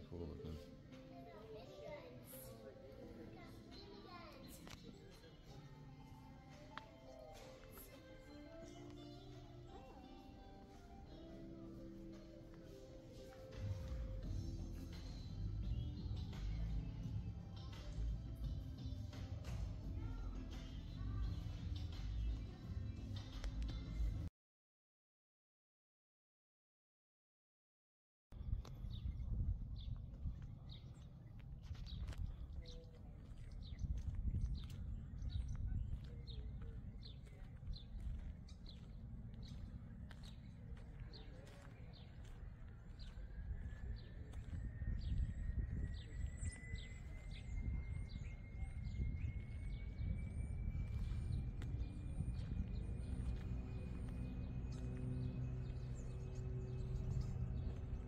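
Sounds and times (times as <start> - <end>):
wind buffeting microphone: 28.4 - 58.0
bird chirping: 28.8 - 58.0.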